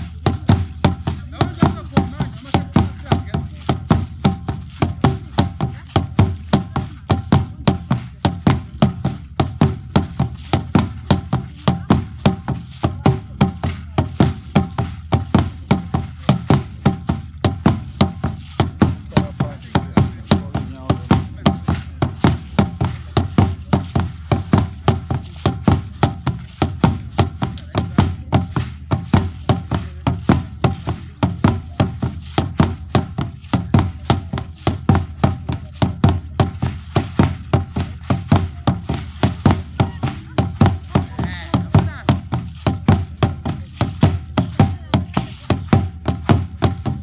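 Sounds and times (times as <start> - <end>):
large drum beating: 0.0 - 47.0.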